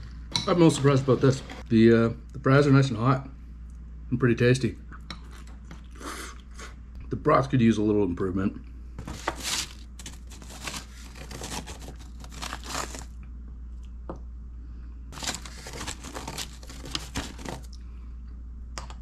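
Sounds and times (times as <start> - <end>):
food packaging crinkling: 9.0 - 13.2, 15.2 - 17.8.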